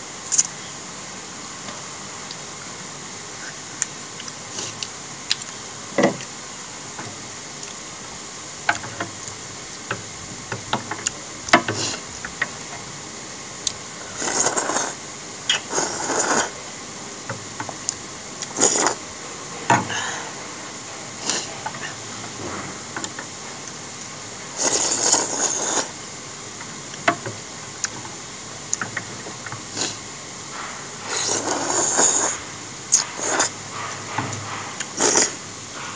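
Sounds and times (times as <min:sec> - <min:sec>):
noodles slurped: 0:14.0 - 0:16.6, 0:17.9 - 0:19.1, 0:21.2 - 0:22.8, 0:24.6 - 0:26.0, 0:30.6 - 0:35.9.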